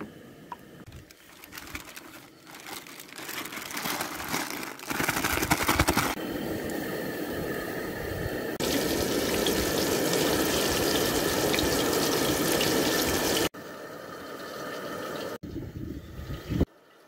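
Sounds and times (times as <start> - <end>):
tap water running: 8.6 - 13.5.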